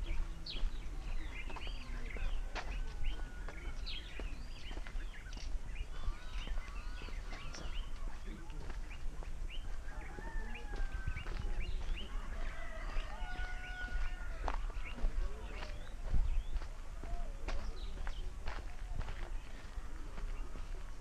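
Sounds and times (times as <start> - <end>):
footsteps crunching on dirt: 0.0 - 21.0
small birds chirping: 0.0 - 21.0.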